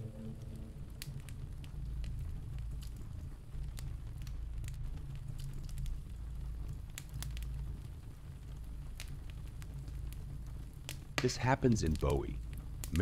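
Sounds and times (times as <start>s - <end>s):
low rumble: 0.0s - 10.4s
wood fire crackling: 0.0s - 13.0s.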